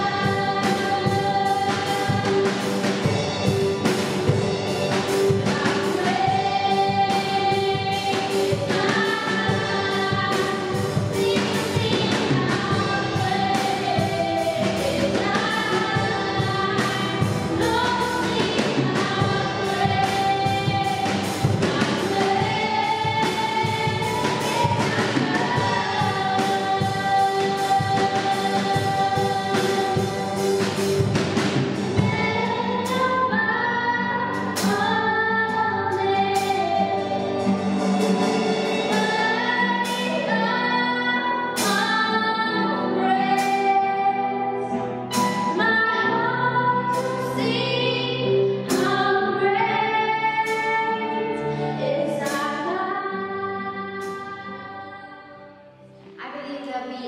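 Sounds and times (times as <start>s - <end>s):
women singing a worship song: 0.0s - 3.3s, 5.0s - 55.6s
drumming: 0.0s - 33.3s, 36.2s - 40.4s
band playing: 0.0s - 54.6s.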